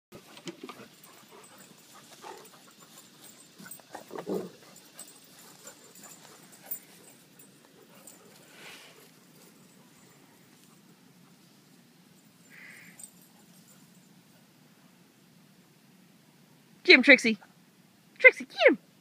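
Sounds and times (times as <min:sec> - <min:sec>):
dogs playing: 0:00.1 - 0:15.1.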